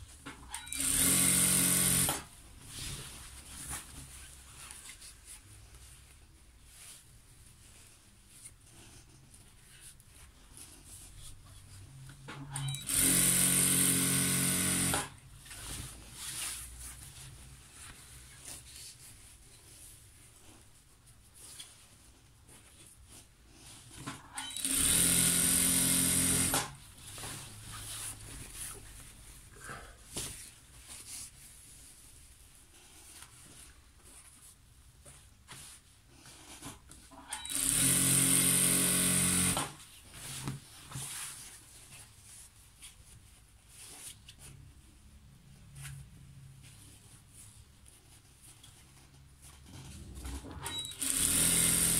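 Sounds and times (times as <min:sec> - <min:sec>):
sewing machine stitching: 0:00.5 - 0:02.3, 0:12.3 - 0:15.2, 0:24.0 - 0:26.8, 0:37.2 - 0:39.8, 0:50.2 - 0:51.9
fabric rustling: 0:02.4 - 0:12.2, 0:15.2 - 0:24.0, 0:26.8 - 0:36.7.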